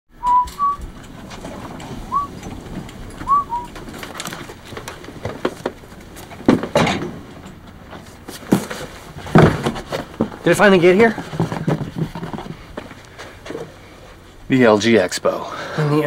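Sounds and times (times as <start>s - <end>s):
cart wheels squeaking: 0.2s - 13.8s
packages thudding onto desks: 3.8s - 7.4s, 8.0s - 10.5s, 11.1s - 12.6s.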